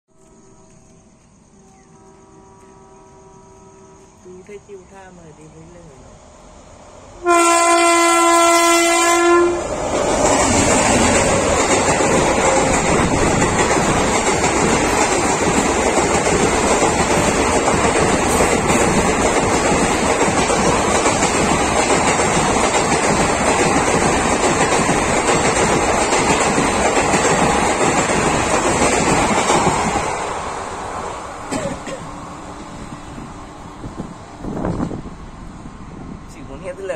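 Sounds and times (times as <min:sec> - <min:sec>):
locomotive horn: 0:01.6 - 0:04.2, 0:07.2 - 0:09.7
train wheels rattling on rails: 0:07.2 - 0:36.9.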